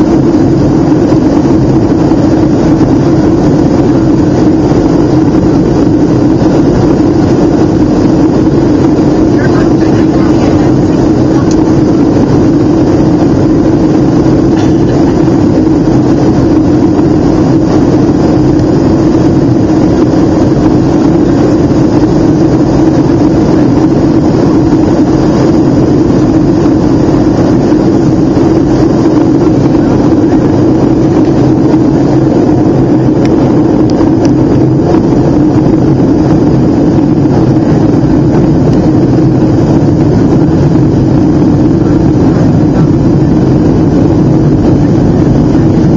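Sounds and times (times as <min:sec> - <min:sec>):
jet engines droning: 0:00.0 - 0:45.9
rushing airflow: 0:00.0 - 0:45.9
steady hum: 0:00.0 - 0:45.9.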